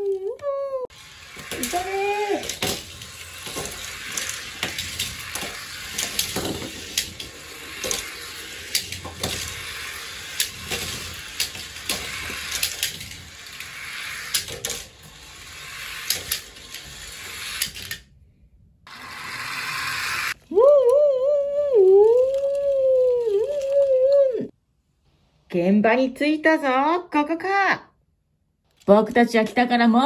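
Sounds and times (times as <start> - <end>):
toy cars rolling down plastic gutter: 0.9 - 18.0, 18.9 - 20.4, 21.6 - 24.3
toy cars clattering against plastic: 0.9 - 18.1.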